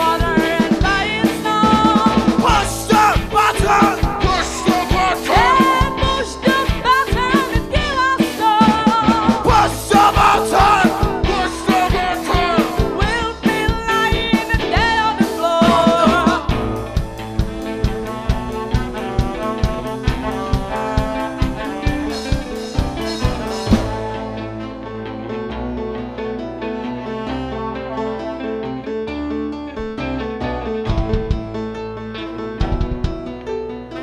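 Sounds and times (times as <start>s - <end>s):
people singing: 0.0s - 6.8s, 8.6s - 13.7s
drum beat: 0.0s - 15.0s, 15.6s - 24.1s, 30.9s - 31.6s, 32.6s - 33.3s
saxophone: 0.0s - 30.0s, 33.5s - 34.0s
electric guitar: 0.0s - 34.0s
keyboard: 0.0s - 34.0s.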